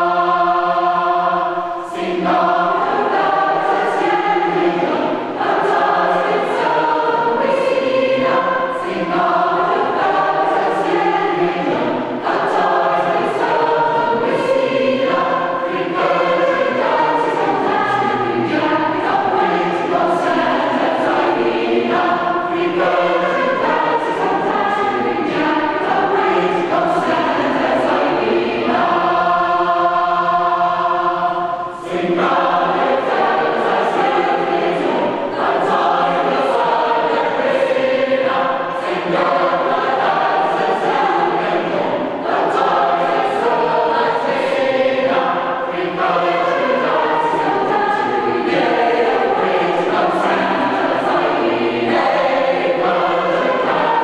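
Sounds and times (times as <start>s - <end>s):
choir singing unaccompanied: 0.0s - 54.0s.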